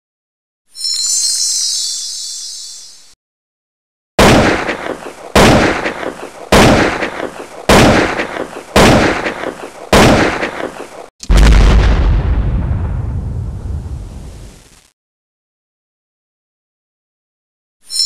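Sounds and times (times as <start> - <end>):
deep booming hits: 4.2 - 10.7, 11.3 - 14.4.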